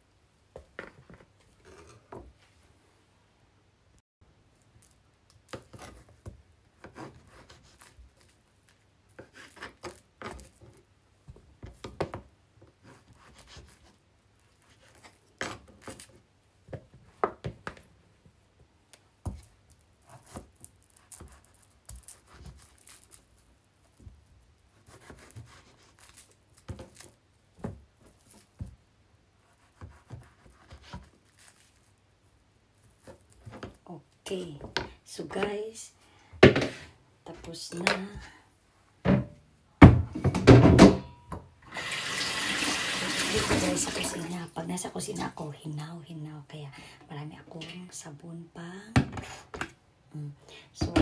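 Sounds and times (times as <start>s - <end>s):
soft rubbing and handling: 4.6s - 11.8s, 12.6s - 17.2s, 18.9s - 34.6s.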